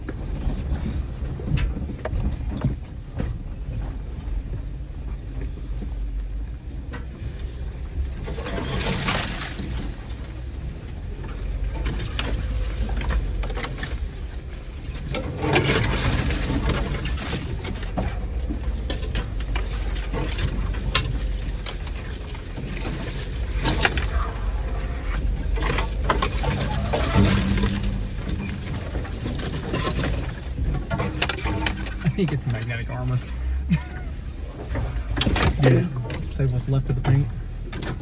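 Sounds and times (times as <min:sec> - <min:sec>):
branches scraping and snapping: 0:07.0 - 0:38.0
vehicle engine running: 0:09.7 - 0:38.0.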